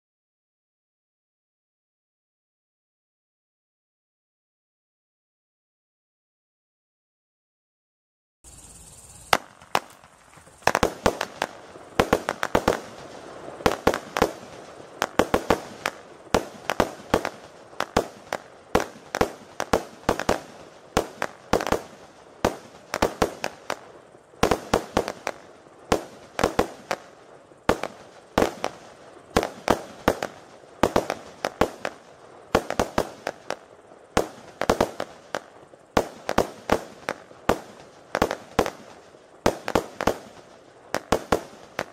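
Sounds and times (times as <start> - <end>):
firework bangs: 9.3 - 41.9.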